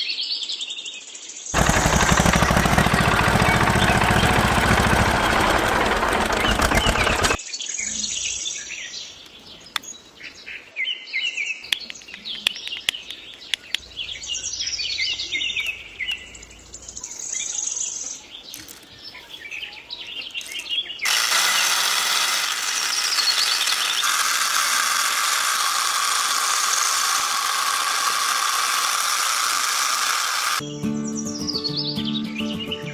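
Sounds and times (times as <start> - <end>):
grinder milling wheat: 1.6 - 7.4, 20.4 - 30.6
small motor running: 1.6 - 7.4, 20.4 - 30.6
birds chirping: 1.6 - 10.7, 11.5 - 21.7, 22.4 - 24.2
small clicks: 11.7 - 13.9.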